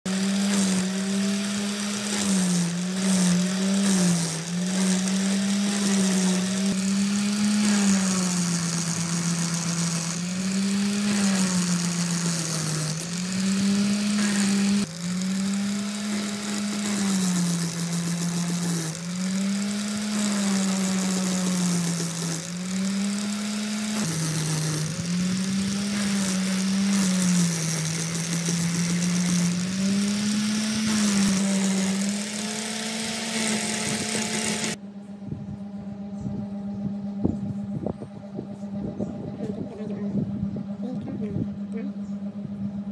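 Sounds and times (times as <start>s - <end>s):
angle grinder grinding steel: 0.0s - 34.8s.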